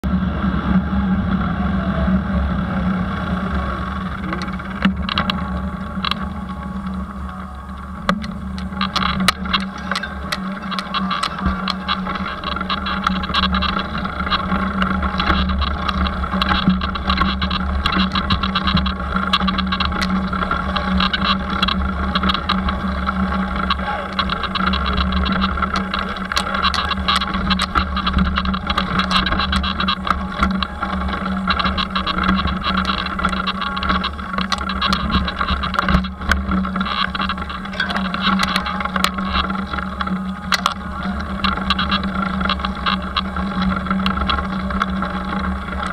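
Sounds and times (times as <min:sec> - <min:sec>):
bike knocking and rattling: 0:00.0 - 0:45.9
bike tyres rumbling on dirt: 0:00.0 - 0:45.9.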